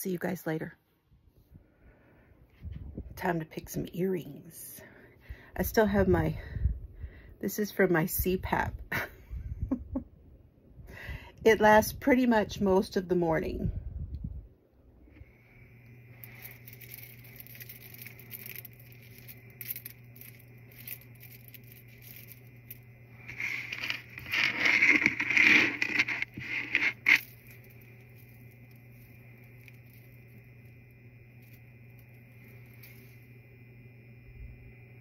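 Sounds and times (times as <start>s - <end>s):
steady low hum: 0.6s - 35.0s
beads and chain clicking: 16.2s - 30.4s.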